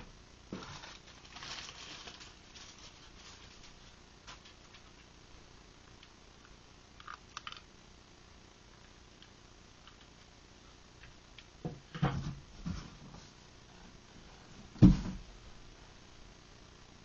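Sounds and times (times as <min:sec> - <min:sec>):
thumps and rustles in cardboard box: 0:14.8 - 0:15.2.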